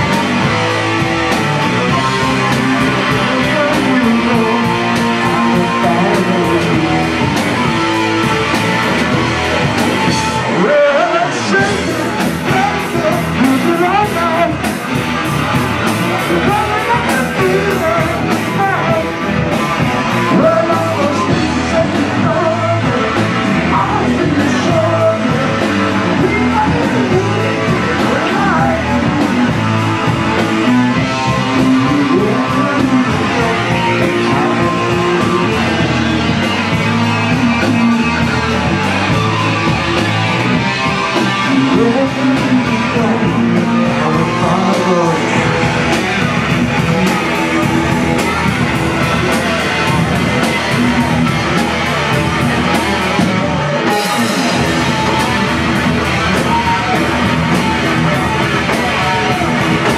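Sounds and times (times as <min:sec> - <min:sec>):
drum kit: 0:00.0 - 0:59.9
electric guitar: 0:00.0 - 0:59.9
person singing: 0:00.0 - 0:59.9.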